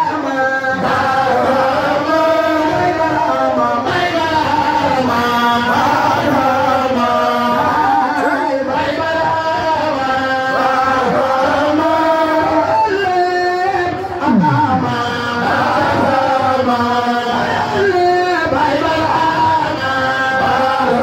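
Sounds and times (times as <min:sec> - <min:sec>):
voices chanting a praise song: 0:00.0 - 0:21.0.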